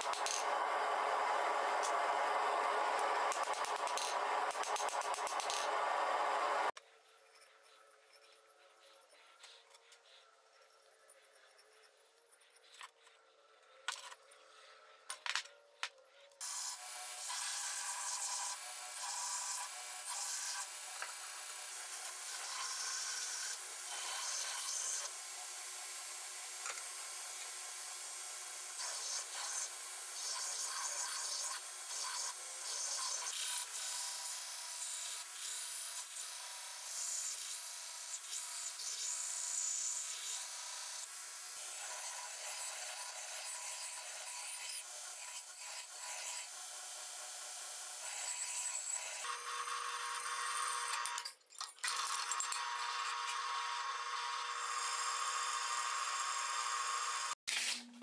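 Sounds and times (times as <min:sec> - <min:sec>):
belt grinder grinding steel: 0:16.4 - 0:46.6.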